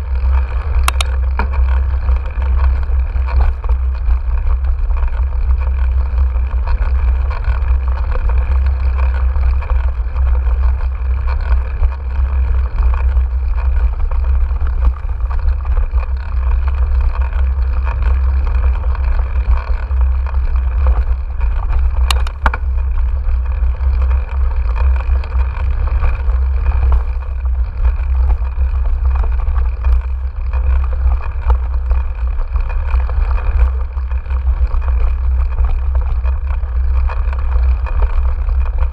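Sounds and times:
bike rattling: 0.0 - 38.9
wind and tyres on dirt rumble: 0.0 - 38.9
sharp click: 0.8 - 1.2, 22.0 - 22.6.

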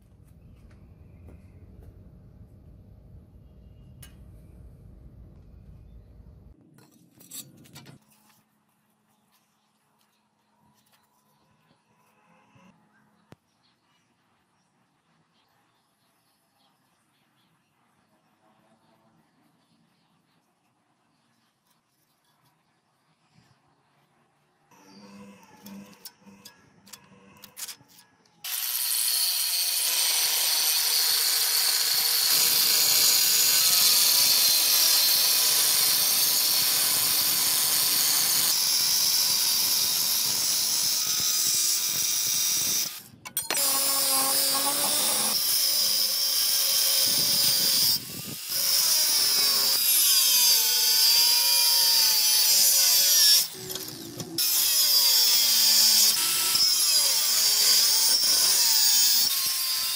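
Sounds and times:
angle grinder cutting steel: 24.8 - 59.9.

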